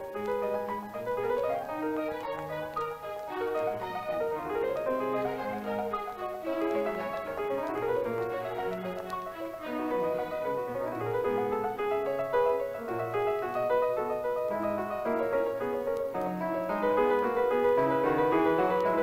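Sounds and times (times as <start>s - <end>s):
piano film music: 0.0s - 19.0s.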